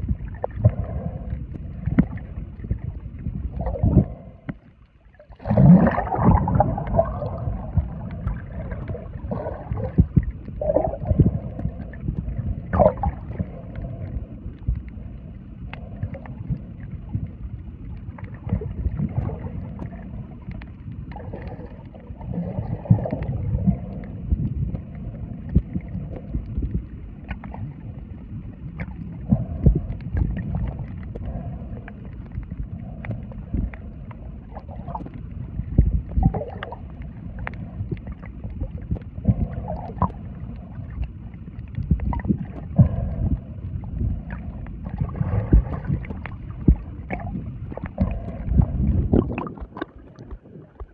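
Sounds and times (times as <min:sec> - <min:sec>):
underwater gurgling: 0:00.0 - 0:50.9
underwater rumbling water wash: 0:00.0 - 0:50.9
underwater clicks and pops: 0:44.2 - 0:50.9.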